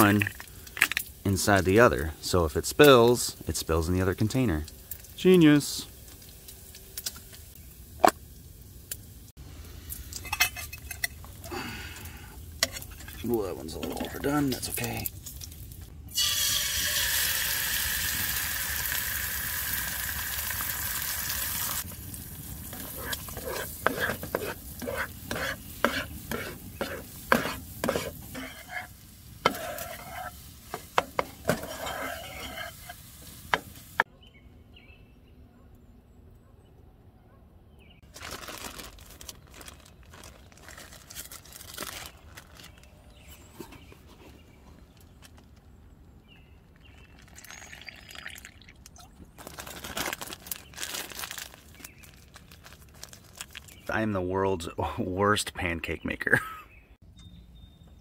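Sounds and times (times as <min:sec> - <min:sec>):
bacon sizzling in frying pan: 0:15.0 - 0:34.0
fork scraping pan: 0:22.7 - 0:33.6
plastic zip bag rustling: 0:38.0 - 0:42.9, 0:49.4 - 0:53.8.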